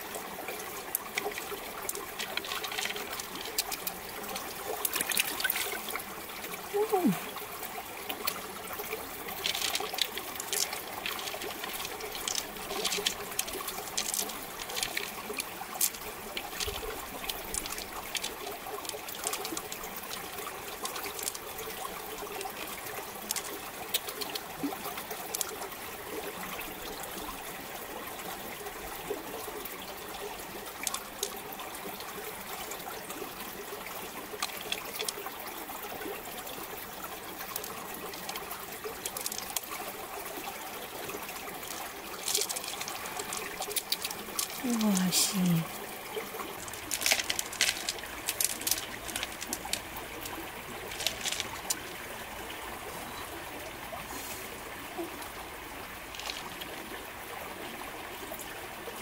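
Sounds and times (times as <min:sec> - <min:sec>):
water trickling and dripping: 0:00.0 - 0:59.0
pearls clicking together: 0:01.9 - 0:04.0, 0:09.3 - 0:21.5, 0:23.2 - 0:25.6, 0:37.6 - 0:39.7, 0:41.5 - 0:45.6, 0:46.6 - 0:51.9, 0:56.1 - 0:56.6.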